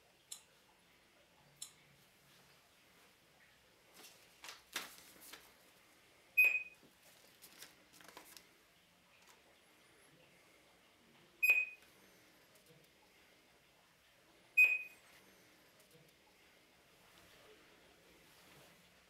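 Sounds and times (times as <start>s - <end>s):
barcode scanner beep: 6.4s - 6.8s, 11.4s - 11.8s, 14.6s - 15.0s.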